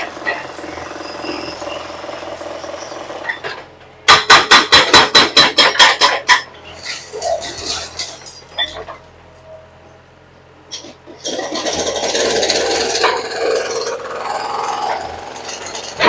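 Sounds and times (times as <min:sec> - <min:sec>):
hydraulic breaker hammering concrete: 0:00.0 - 0:06.5, 0:11.2 - 0:16.0
excavator running: 0:00.0 - 0:16.0.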